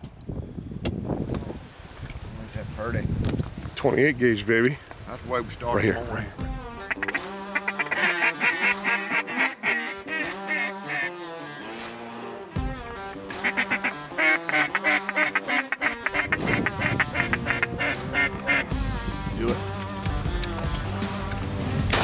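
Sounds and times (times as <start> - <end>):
background music with held notes: 5.7 - 22.0
duck quacking: 6.8 - 11.8, 13.1 - 18.7.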